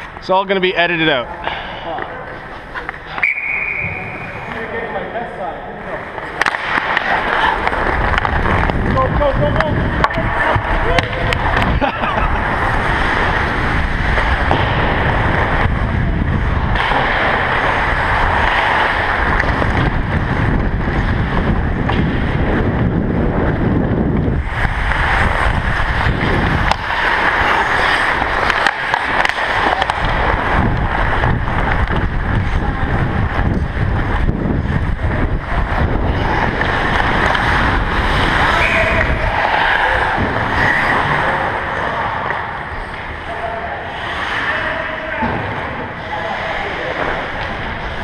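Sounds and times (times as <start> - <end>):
skate blades on ice: 5.8 - 48.0
air rushing over camera: 7.4 - 41.3.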